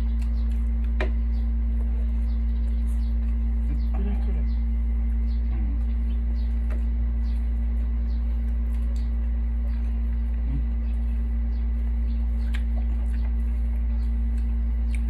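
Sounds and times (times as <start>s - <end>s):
faint eating clicks: 0.0s - 1.2s, 8.2s - 15.0s
steady low hum: 0.0s - 15.0s.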